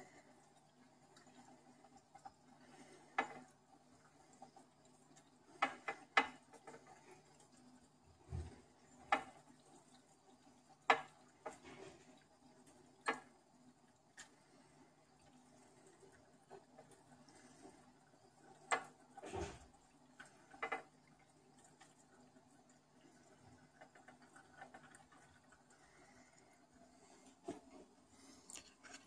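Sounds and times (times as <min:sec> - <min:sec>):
aquarium filter hum: 0:00.0 - 0:29.0
clicks and knocks in a tank: 0:01.0 - 0:03.7, 0:04.3 - 0:14.4, 0:18.4 - 0:26.4.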